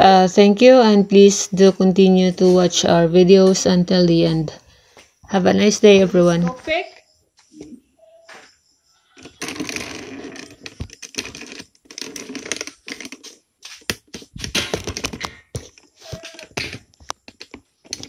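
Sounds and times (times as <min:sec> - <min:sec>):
clicks taps and rattles: 0:10.5 - 0:18.0.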